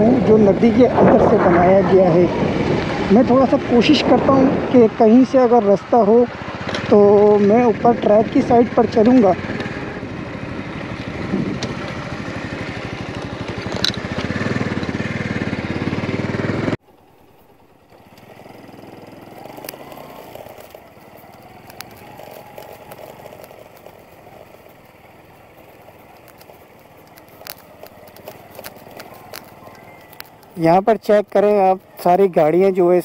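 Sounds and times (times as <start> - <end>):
vehicle engine running: 0.0 - 33.0
scattered clicks and crackles: 0.6 - 5.5, 6.6 - 9.8, 10.8 - 15.0, 16.8 - 32.5.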